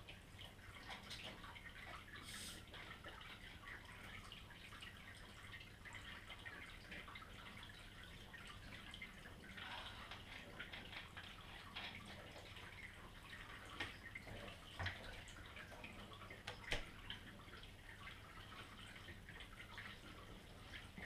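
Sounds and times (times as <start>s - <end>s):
water trickling and dripping: 0.0s - 21.0s.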